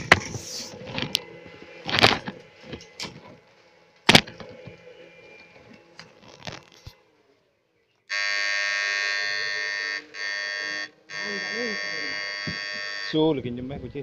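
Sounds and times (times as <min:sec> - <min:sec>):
dry palm fronds rustling: 0:00.0 - 0:07.0
faint electronic whine: 0:00.0 - 0:14.0.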